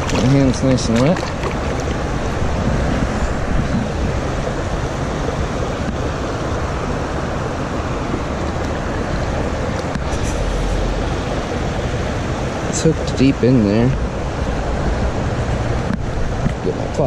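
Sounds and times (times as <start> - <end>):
river flowing around rocks: 0.0 - 17.0.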